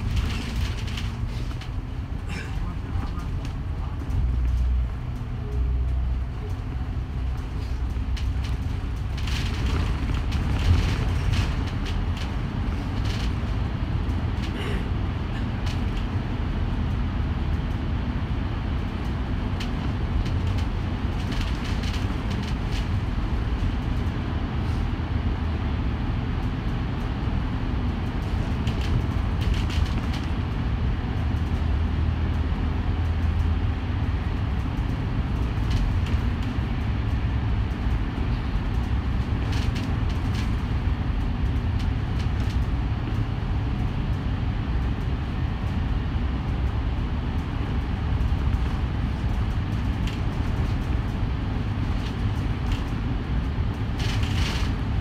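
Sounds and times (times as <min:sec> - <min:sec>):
bus engine rumbling: 0:00.0 - 0:55.0.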